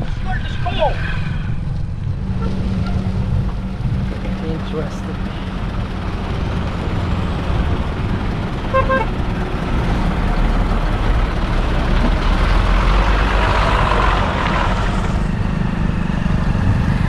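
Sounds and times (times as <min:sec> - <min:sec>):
diesel truck engine passing: 0:00.0 - 0:17.0
vehicle horn toots: 0:08.7 - 0:09.1.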